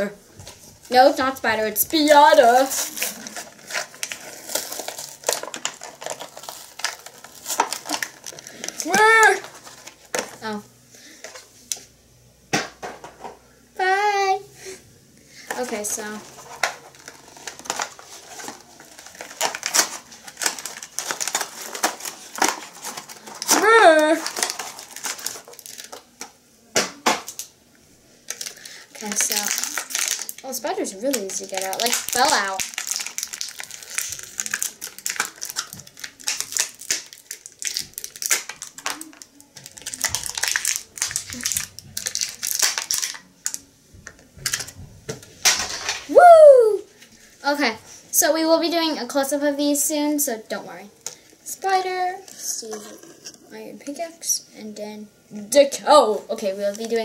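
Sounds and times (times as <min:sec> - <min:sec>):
plastic packaging crackling: 0:00.0 - 0:11.8, 0:15.5 - 0:27.5, 0:28.2 - 0:46.1.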